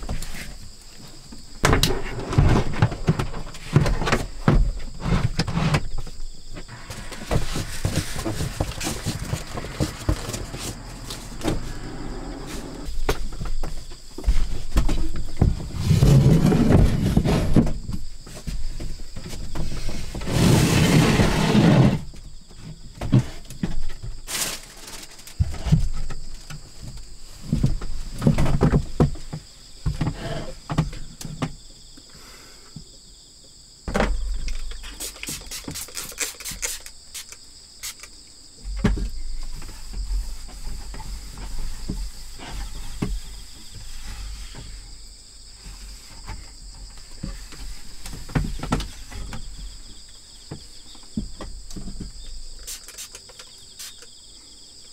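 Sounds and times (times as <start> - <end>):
rustling: 0.0 - 21.9
insects trilling: 0.0 - 54.9.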